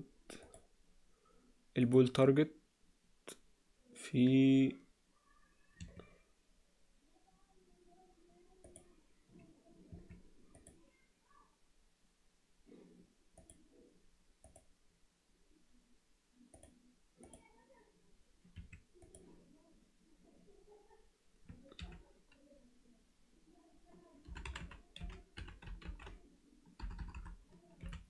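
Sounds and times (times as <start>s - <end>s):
keyboard typing: 5.8s - 6.1s, 9.9s - 10.8s, 18.5s - 19.3s, 21.5s - 22.4s, 24.2s - 28.0s
mouse clicks: 8.6s - 8.9s, 14.4s - 14.7s.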